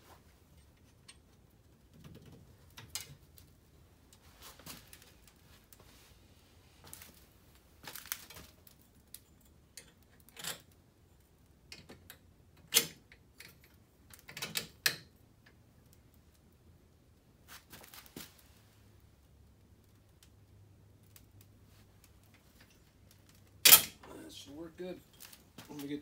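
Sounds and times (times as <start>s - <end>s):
hands handling metal parts: 0.0s - 6.1s, 6.8s - 10.8s, 21.0s - 26.0s.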